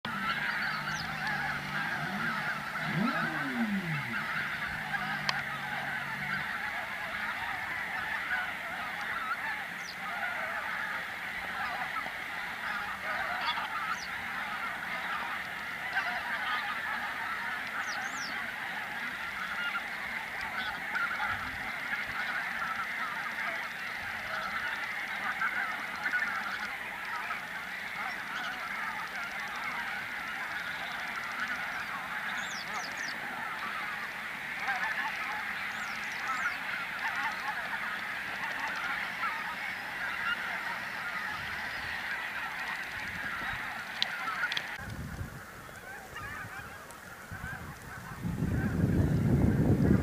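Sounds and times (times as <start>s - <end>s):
geese honking: 0.0s - 50.0s.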